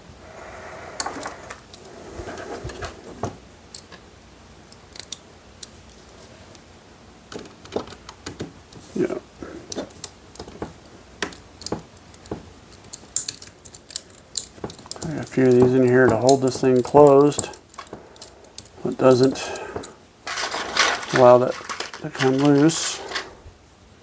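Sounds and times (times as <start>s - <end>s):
screws and screwdriver clicking: 4.7s - 5.2s, 11.2s - 23.3s.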